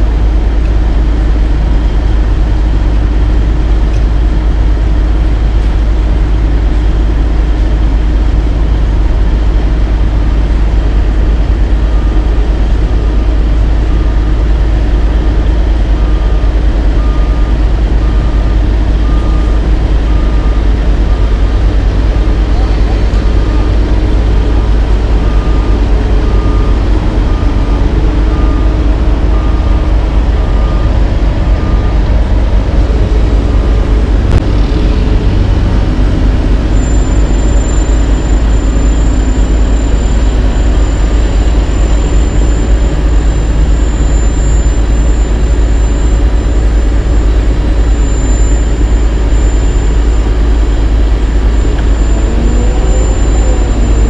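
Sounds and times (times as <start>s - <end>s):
heavy diesel engines rumbling: 0.0s - 54.0s
faint repeated beep: 25.2s - 54.0s.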